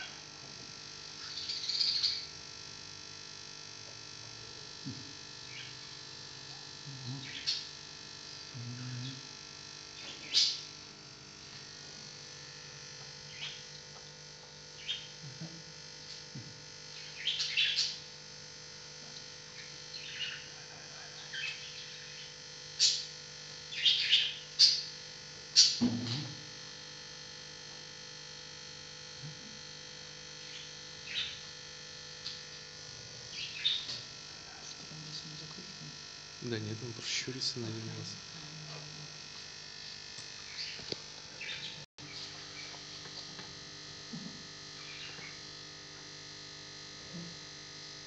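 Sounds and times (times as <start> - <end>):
electrical hum: 0.0 - 48.0
parrot chirping: 1.2 - 2.2, 17.0 - 18.0, 23.7 - 24.8, 30.5 - 31.4, 33.3 - 33.9.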